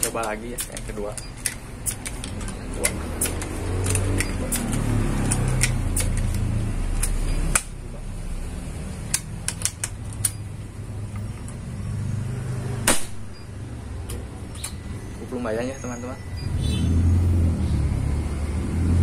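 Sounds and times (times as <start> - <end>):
air rifle metal clicks: 0.0 - 7.8, 9.0 - 10.4
passing vehicle engine hum: 2.5 - 9.6, 10.5 - 12.9, 13.6 - 19.0
air rifle shot: 12.8 - 13.3.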